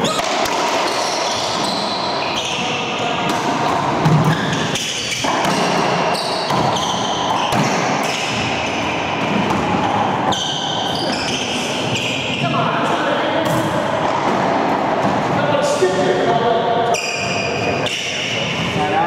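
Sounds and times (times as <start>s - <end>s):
sneakers squeaking on hardwood floor: 0.0s - 14.4s, 16.8s - 18.6s
ball smacking off racquets and walls: 3.2s - 12.1s.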